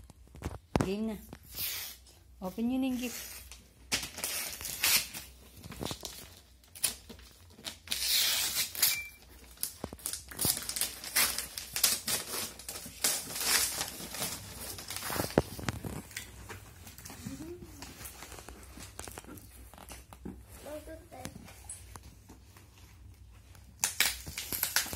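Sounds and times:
wrapping paper ripping and crinkling: 2.9 - 21.2, 23.6 - 24.9.

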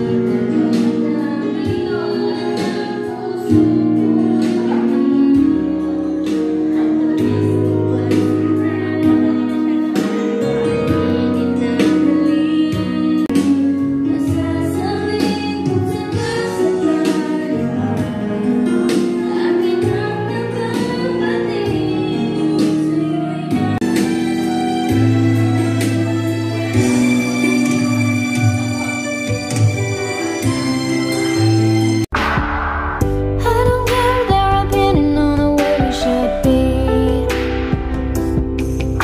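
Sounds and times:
woman singing into microphone: 0.0 - 24.3, 33.3 - 37.7
instrumental accompaniment with beat: 0.0 - 39.0.

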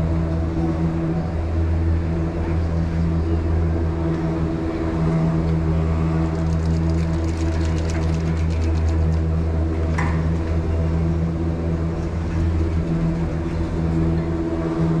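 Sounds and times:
gondola lift machinery hum: 0.0 - 15.0
light rapid clicks: 6.2 - 9.3.

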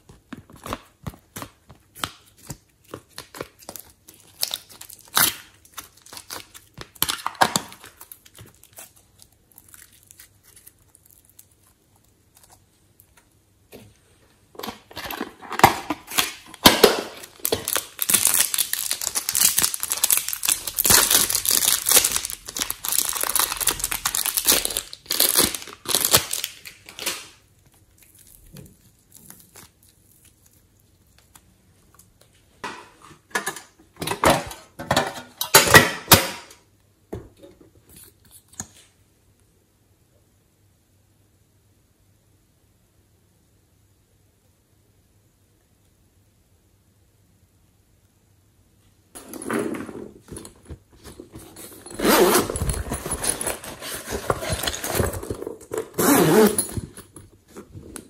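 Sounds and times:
plastic crinkling and tearing: 0.4 - 13.1, 15.6 - 32.0, 50.4 - 58.0.

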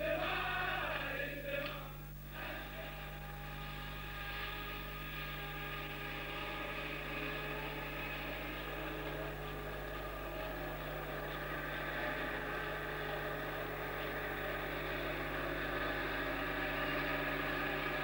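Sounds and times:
men singing together: 0.0 - 3.0
bus engine droning: 0.0 - 18.0.

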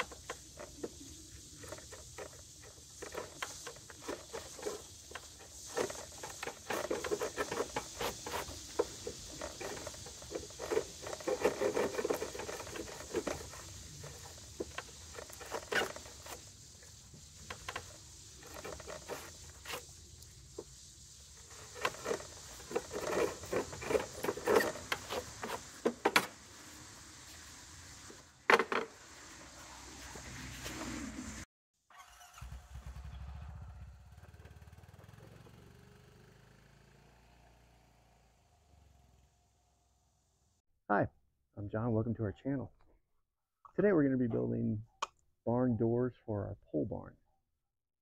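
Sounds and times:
chisel scraping wood: 1.6 - 16.4, 17.5 - 19.9, 21.5 - 26.2.

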